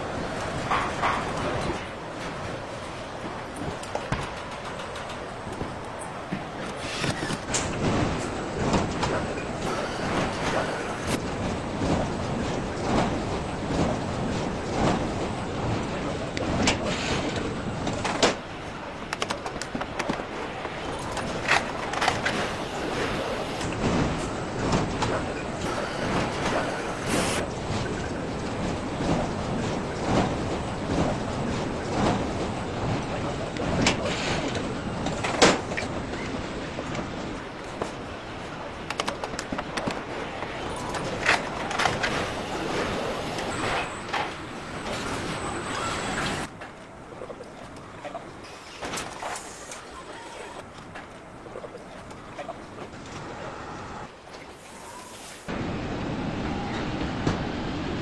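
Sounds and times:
machinery hum: 0.0s - 58.0s
tools clicking and clanking: 3.6s - 7.8s.

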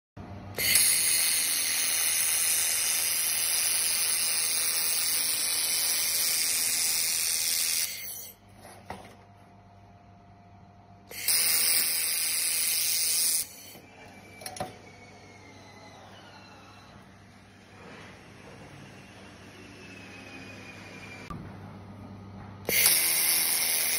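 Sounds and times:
laser welder hissing: 0.6s - 8.4s, 11.1s - 13.8s, 22.7s - 23.9s.

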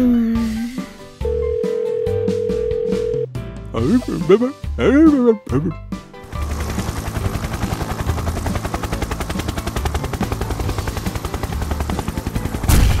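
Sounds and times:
helicopter rotor chopping: 6.2s - 13.0s.

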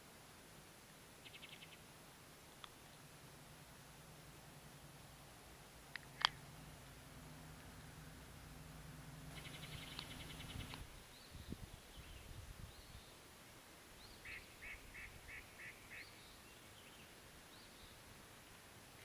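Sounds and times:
bird calls: 1.2s - 1.8s, 9.3s - 13.2s, 14.0s - 18.0s
high bird chirps: 9.3s - 12.2s.

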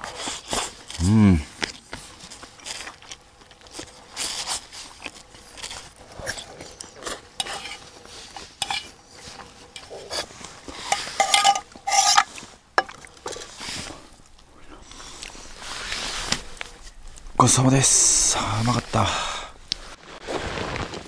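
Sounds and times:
metal fork scraping pots: 7.4s - 7.8s, 8.6s - 13.6s
metal cookware clanking: 8.6s - 8.8s, 10.9s - 13.4s.

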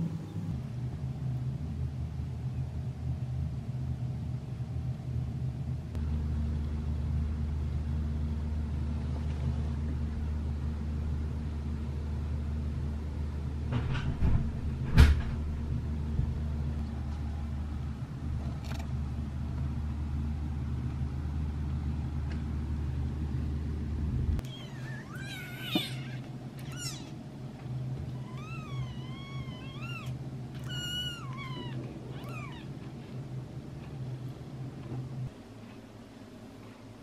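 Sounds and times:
steady low hum: 0.0s - 37.0s
kitten mewing: 24.4s - 27.2s, 28.1s - 32.8s.

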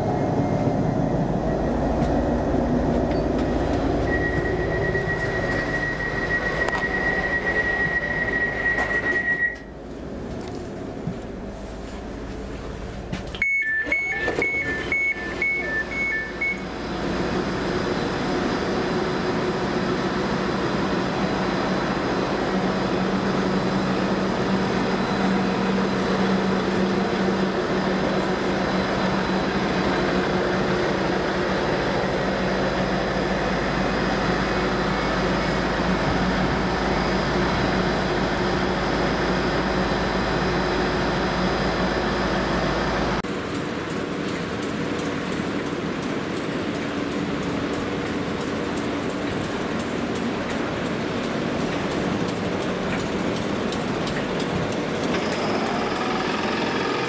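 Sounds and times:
diesel generator and fans running: 0.0s - 57.0s
two-tone door warning beeps: 3.1s - 9.8s, 13.4s - 16.7s.

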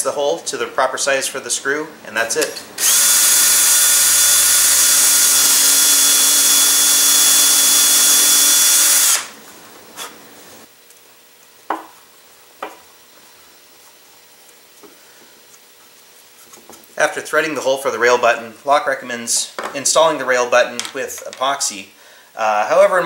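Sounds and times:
cordless drill whining: 2.8s - 9.4s.

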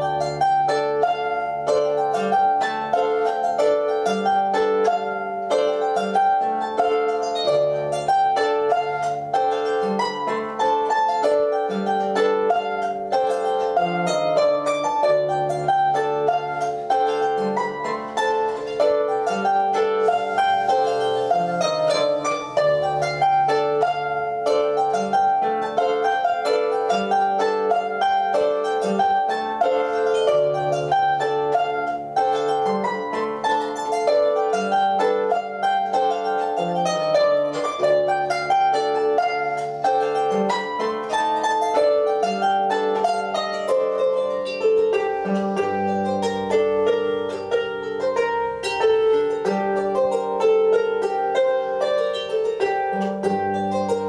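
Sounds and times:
solo harp melody: 0.0s - 54.0s.

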